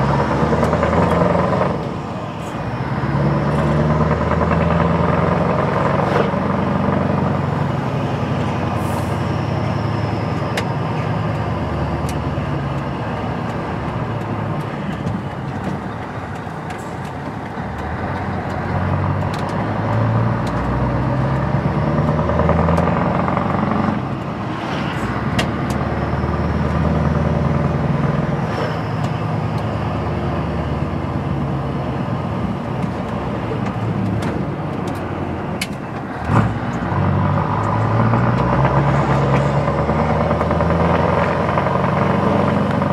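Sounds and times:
diesel truck engine: 0.0s - 42.9s
road noise: 0.0s - 42.9s.

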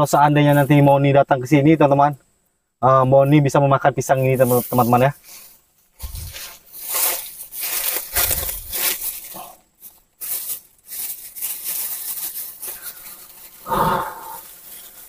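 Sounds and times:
rustling and crackling in leaves: 4.2s - 15.0s.

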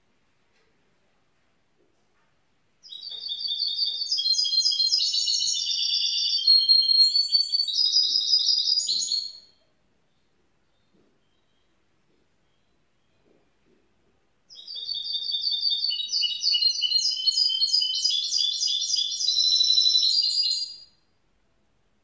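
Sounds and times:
bird singing high chirping notes: 2.8s - 9.6s, 14.5s - 21.0s.

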